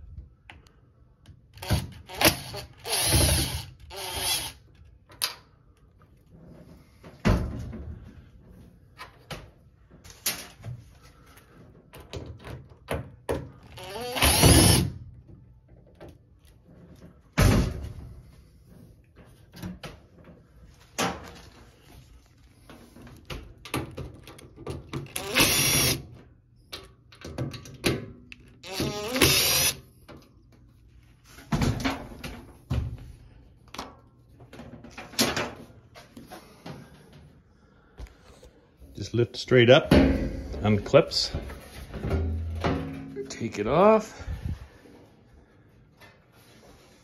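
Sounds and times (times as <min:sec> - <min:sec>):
cordless drill running: 0:01.6 - 0:04.6, 0:13.7 - 0:14.9, 0:25.1 - 0:26.0, 0:28.6 - 0:29.8.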